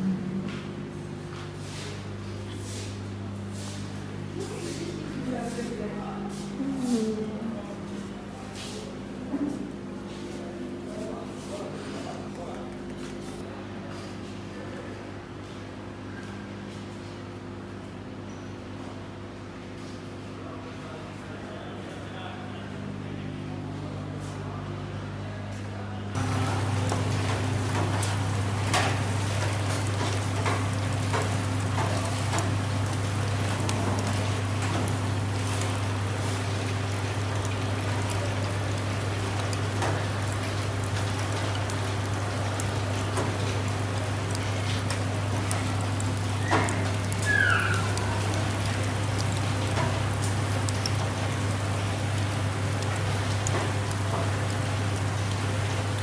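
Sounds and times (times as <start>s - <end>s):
skewers sizzling on grill: 1.6s - 7.2s, 26.2s - 56.0s
constant low hum: 22.7s - 56.0s
fire crackles: 26.2s - 56.0s.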